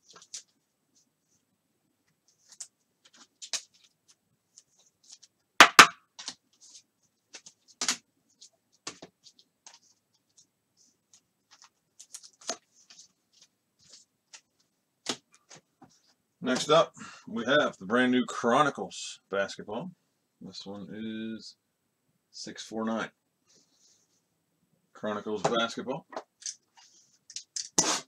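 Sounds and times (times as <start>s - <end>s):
hands handling trading cards: 0.0s - 0.6s, 2.1s - 5.4s, 6.2s - 16.1s.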